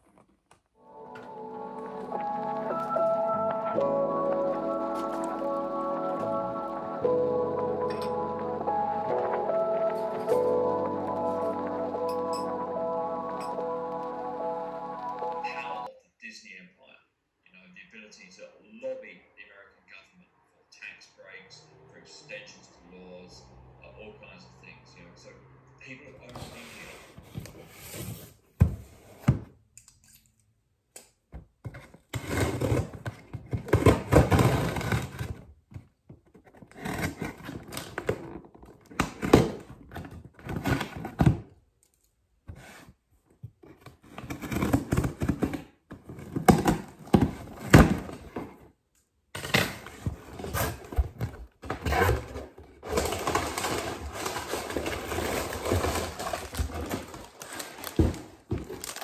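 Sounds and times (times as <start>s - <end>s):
cardboard scraping and tearing: 31.8s - 35.5s, 36.4s - 41.4s, 43.8s - 48.6s, 49.4s - 59.0s.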